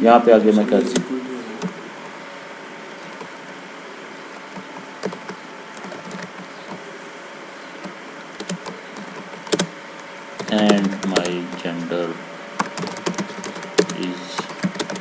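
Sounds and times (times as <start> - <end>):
faint hum: 0.0 - 15.0
keyboard keystrokes clicking: 4.5 - 6.8, 8.4 - 9.7, 10.4 - 11.6, 12.6 - 15.0.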